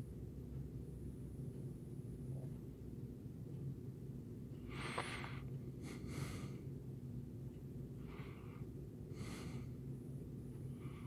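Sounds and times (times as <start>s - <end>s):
faint low hum: 0.0s - 11.0s
person breathing: 4.6s - 6.8s, 8.0s - 9.8s, 10.6s - 11.0s.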